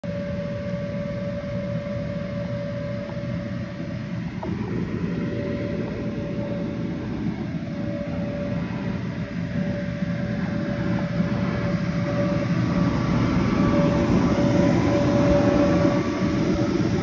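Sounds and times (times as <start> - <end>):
electric blower humming and whining: 0.0 - 17.0.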